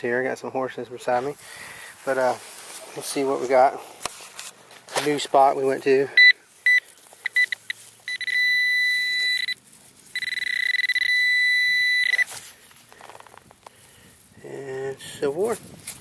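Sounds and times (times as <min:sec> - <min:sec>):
pinpointer beeping: 0:06.2 - 0:09.6, 0:10.2 - 0:12.3.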